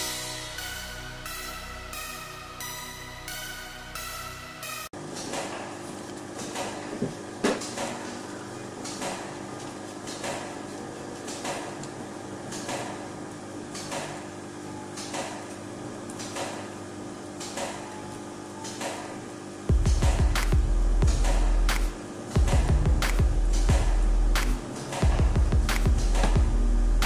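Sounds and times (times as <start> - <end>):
steady low hum: 15.2 - 27.0.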